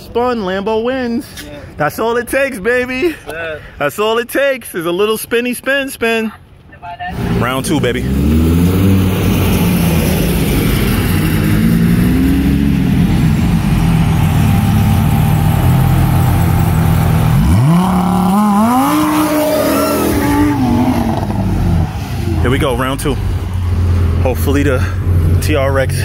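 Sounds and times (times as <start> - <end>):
engine revving sharply: 7.1 - 26.0
engines idling with low rumble: 12.5 - 19.4.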